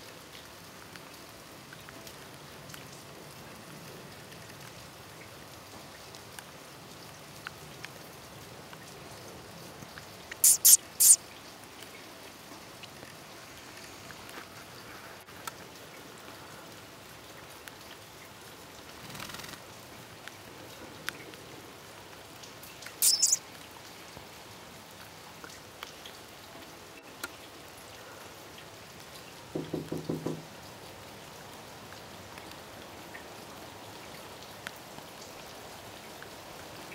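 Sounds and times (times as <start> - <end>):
light rain patter: 0.0 - 36.9
sharp high chirps: 10.4 - 11.2, 23.0 - 23.4.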